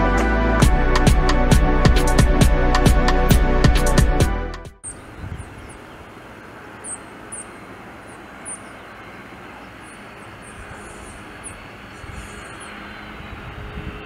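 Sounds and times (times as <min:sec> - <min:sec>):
jet engine rumble and whine: 0:05.4 - 0:14.0.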